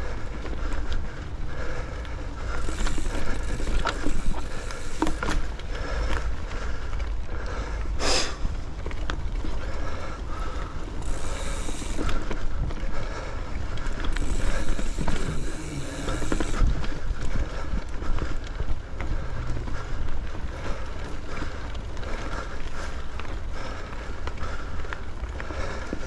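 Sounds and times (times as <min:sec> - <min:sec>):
bike tyres on dirt: 0:00.0 - 0:26.0
wind rumbling on microphone: 0:00.0 - 0:26.0
bike rattling knocks: 0:02.6 - 0:05.5, 0:11.0 - 0:12.4, 0:14.0 - 0:16.6.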